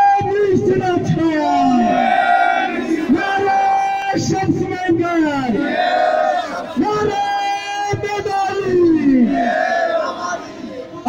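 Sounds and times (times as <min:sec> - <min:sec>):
man calling through a microphone: 0:00.0 - 0:05.8, 0:06.5 - 0:09.6
crowd of men shouting slogans: 0:01.6 - 0:04.3, 0:05.3 - 0:11.0.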